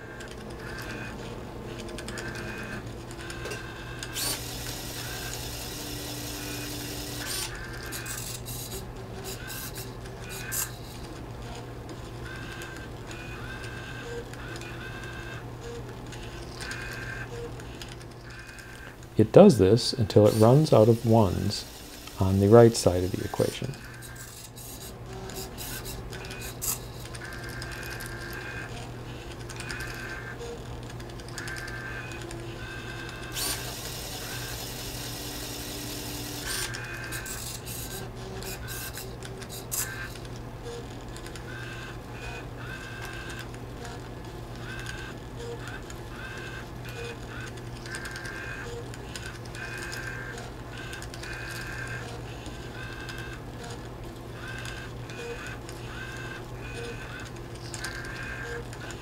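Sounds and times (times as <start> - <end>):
mechanism clicks: 0.0 - 19.1, 20.1 - 59.0
steady low hum: 0.0 - 59.0
tape drive whining: 0.0 - 59.0.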